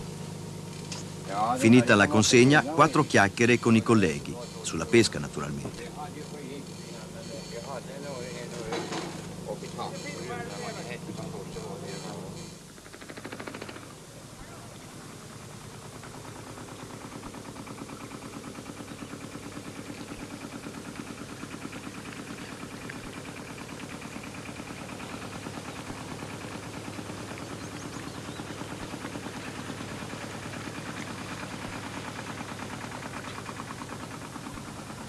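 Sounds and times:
boat engine chugging: 0.0s - 35.0s.

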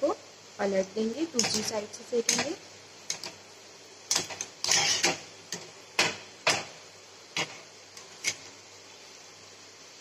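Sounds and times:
oil sizzling: 0.0s - 10.0s
skimmer scraping steel wok: 1.3s - 3.4s, 4.1s - 8.6s.

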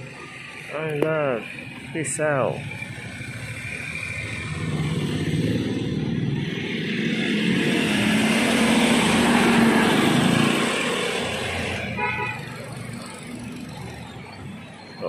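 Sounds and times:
van driving past: 2.6s - 11.9s.

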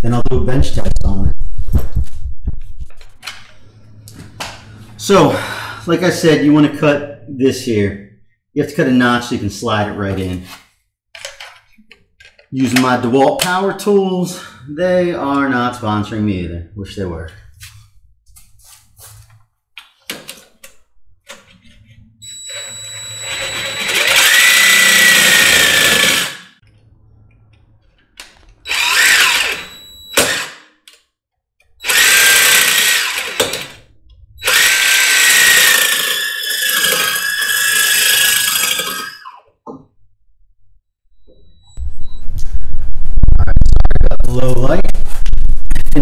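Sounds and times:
power drill cutting metal: 22.2s - 26.6s, 28.7s - 30.6s, 31.8s - 33.8s, 34.4s - 39.5s.

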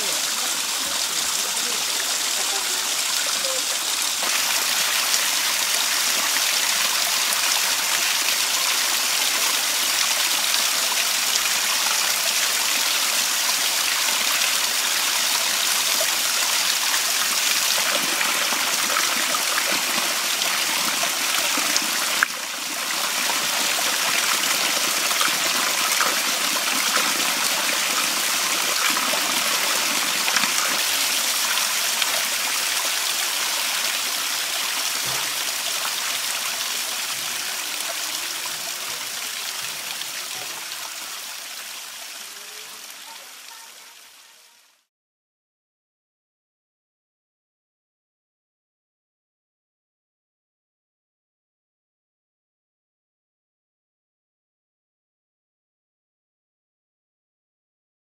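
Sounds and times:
water trickling over rocks: 0.0s - 44.2s.

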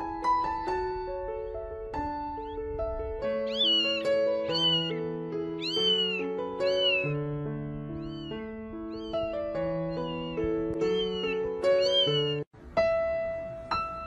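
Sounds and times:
soft piano music: 0.0s - 14.0s
kitten mewing: 5.6s - 7.1s.

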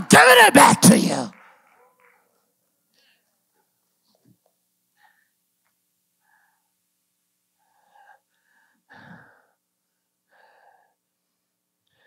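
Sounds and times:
mouth sounds: 0.0s - 1.3s
faint breaths: 4.9s - 5.5s, 6.1s - 12.0s.

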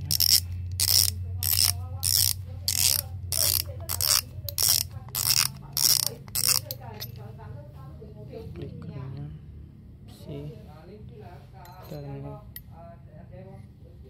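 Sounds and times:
reel drag clicker ratcheting: 0.1s - 6.8s.

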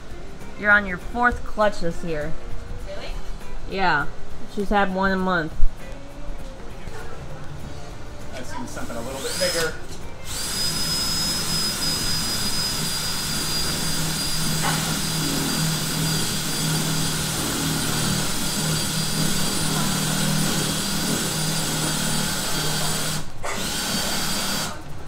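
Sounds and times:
cordless drill whining: 8.8s - 24.8s.

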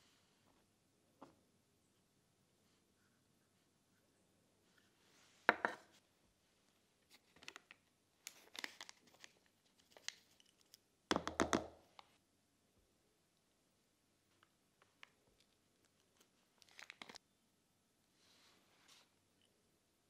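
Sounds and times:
spice sachet crinkling: 7.0s - 10.9s, 14.4s - 17.2s.

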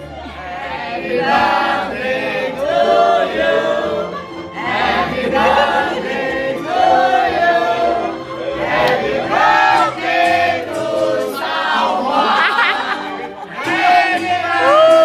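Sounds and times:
group singing in unison: 0.0s - 15.0s.

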